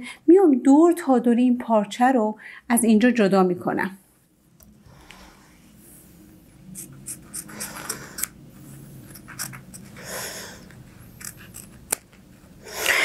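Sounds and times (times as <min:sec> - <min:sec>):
scissors snipping fabric: 0:11.2 - 0:12.2.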